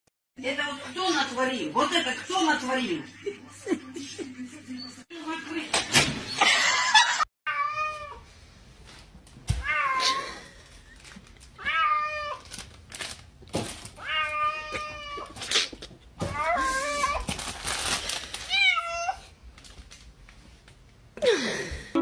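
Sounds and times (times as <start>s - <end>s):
cat meowing: 11.6s - 12.4s, 18.5s - 19.3s.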